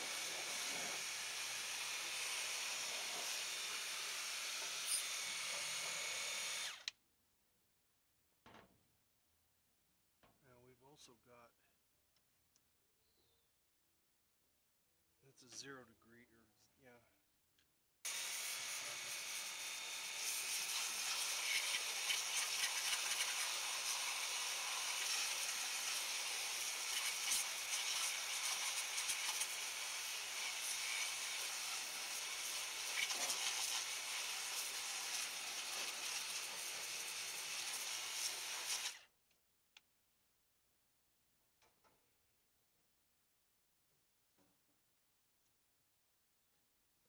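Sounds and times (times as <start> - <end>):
pressure washer spraying water: 20.1 - 39.0.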